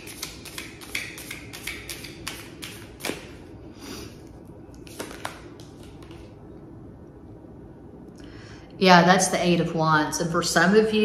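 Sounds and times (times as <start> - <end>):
cards clicking and tapping: 0.0 - 3.3, 4.9 - 6.2
cards swishing: 0.0 - 3.3, 4.8 - 6.3.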